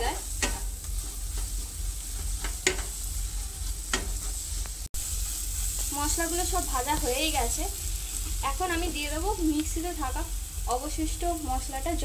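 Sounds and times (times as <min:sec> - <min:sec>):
spatula stirring and scraping: 0:00.0 - 0:08.6
onions sizzling in oil: 0:00.0 - 0:12.0
spatula tapping the pan: 0:00.4 - 0:01.6, 0:02.2 - 0:03.0, 0:03.9 - 0:04.8.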